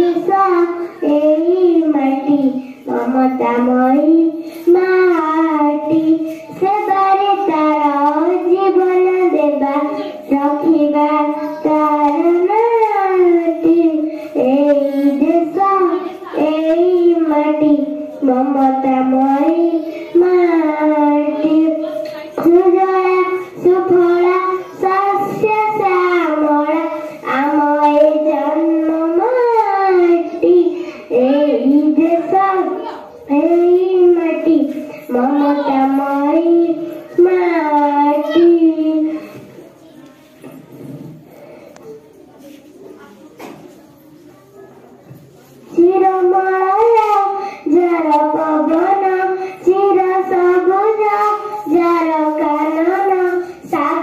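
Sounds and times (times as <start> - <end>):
girl singing into a microphone: 0.0 - 42.5, 45.1 - 54.0
girl breathing between phrases: 4.4 - 4.7, 6.2 - 6.6, 14.0 - 15.2, 47.4 - 47.7.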